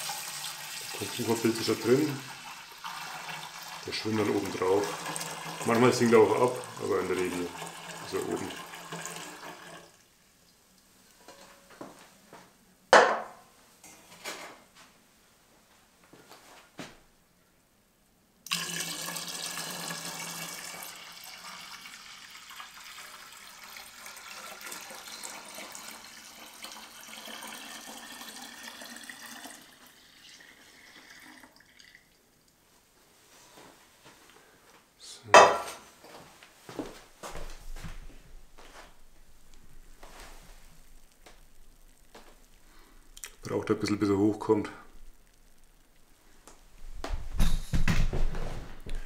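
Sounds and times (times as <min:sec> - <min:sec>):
liquid pouring into barrel: 0:00.0 - 0:10.1, 0:18.5 - 0:32.3
pot knocking against barrel: 0:13.0 - 0:13.4, 0:35.4 - 0:35.8.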